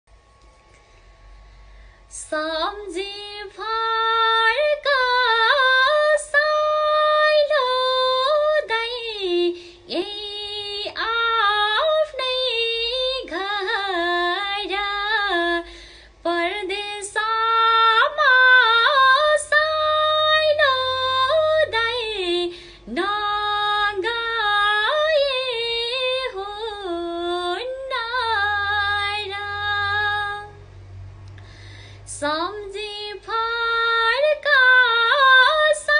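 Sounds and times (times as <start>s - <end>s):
woman singing unaccompanied: 2.1s - 30.6s, 32.0s - 35.9s.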